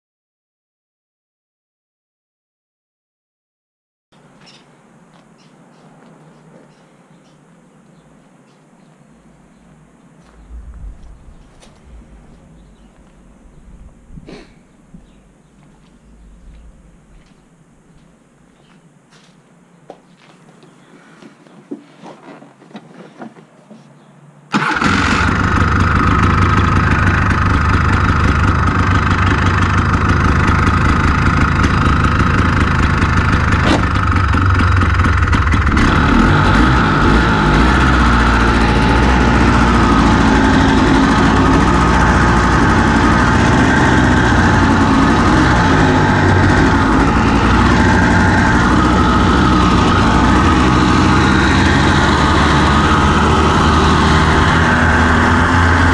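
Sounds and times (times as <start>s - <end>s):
buggy engine running: 10.2s - 17.4s, 24.5s - 55.9s.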